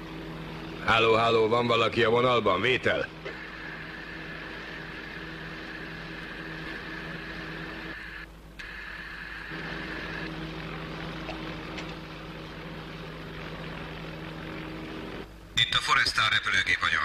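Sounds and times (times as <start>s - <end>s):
engine drone: 0.0s - 17.0s
high whine: 0.0s - 17.0s.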